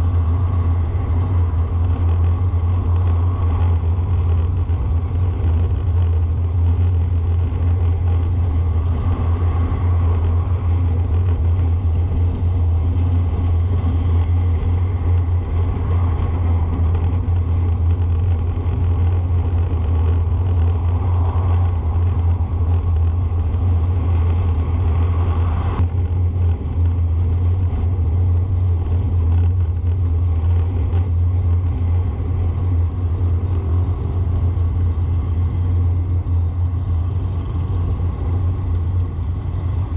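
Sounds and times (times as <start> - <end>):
road noise: 0.0 - 39.9
vehicle engine drone: 0.0 - 39.9.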